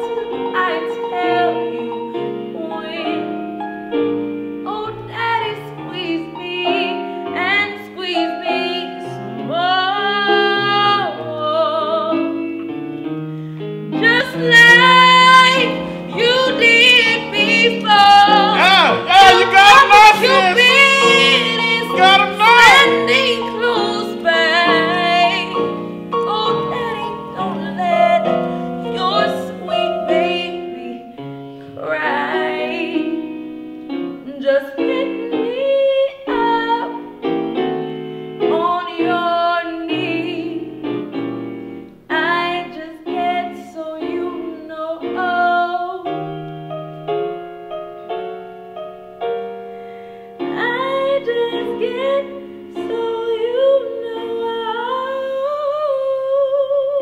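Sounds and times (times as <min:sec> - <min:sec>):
woman singing a slow song: 0:00.0 - 0:03.4, 0:04.7 - 0:12.4, 0:14.0 - 0:33.4, 0:34.2 - 0:37.1, 0:38.4 - 0:40.7, 0:42.1 - 0:46.2, 0:50.5 - 0:57.0
grand piano accompaniment: 0:00.0 - 0:57.0.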